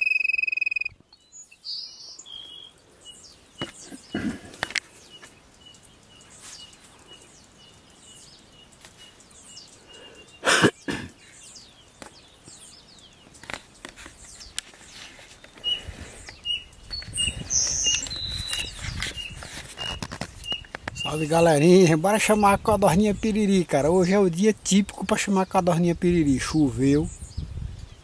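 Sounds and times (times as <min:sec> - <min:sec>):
bird piping short high notes: 0:00.0 - 0:01.0
birds chirping faintly: 0:00.0 - 0:28.0.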